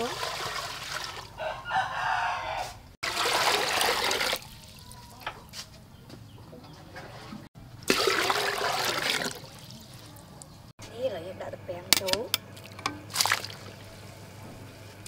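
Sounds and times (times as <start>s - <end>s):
water pouring into metal pot: 0.0s - 1.3s, 3.0s - 5.2s, 7.9s - 10.0s.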